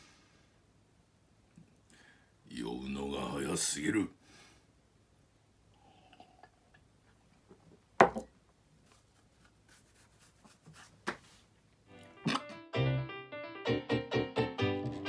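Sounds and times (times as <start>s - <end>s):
person sipping: 5.7s - 6.8s
glass knocking on wood: 8.0s - 8.3s.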